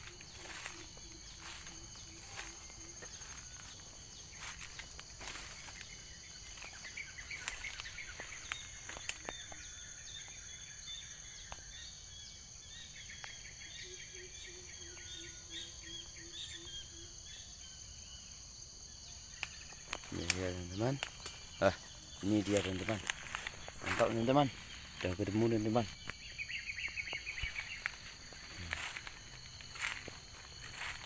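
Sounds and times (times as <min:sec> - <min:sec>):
footsteps in undergrowth: 0:00.0 - 0:09.6, 0:19.8 - 0:31.0
bird chirps: 0:00.0 - 0:17.6, 0:19.2 - 0:31.0
high insect drone: 0:00.0 - 0:31.0.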